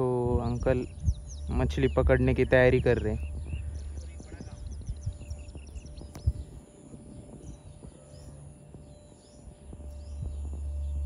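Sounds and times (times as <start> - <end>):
small birds chirping: 0.0 - 11.0
steady low rumble: 0.0 - 11.0.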